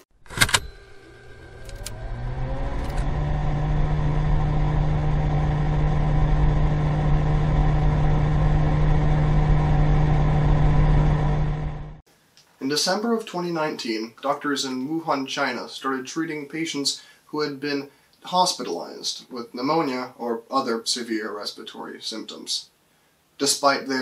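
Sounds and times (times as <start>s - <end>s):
electric motor whirring: 0.2s - 12.0s.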